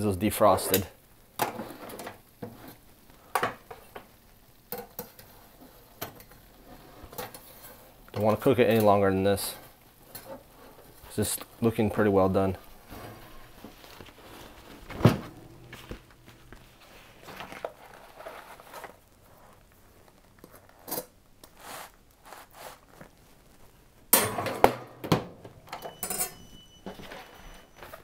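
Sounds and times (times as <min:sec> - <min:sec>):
metal rack and tray clanking: 0:14.9 - 0:16.4.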